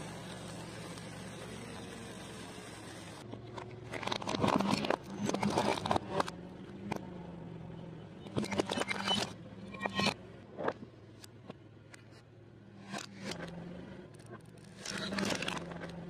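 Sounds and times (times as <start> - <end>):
sparkler hissing: 0.0 - 3.2
low car engine hum: 0.0 - 16.0.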